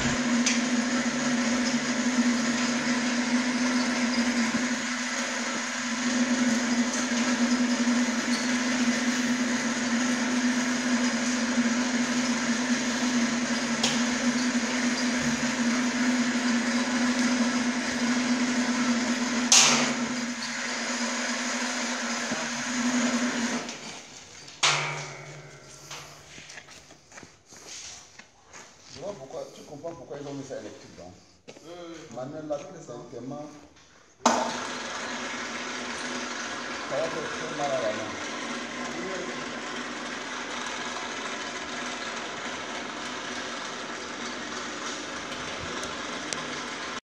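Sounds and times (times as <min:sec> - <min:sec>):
electric hoist motor humming: 0:00.0 - 0:27.0, 0:34.2 - 0:47.0
sharp metallic clank: 0:19.5 - 0:20.1, 0:24.6 - 0:26.4.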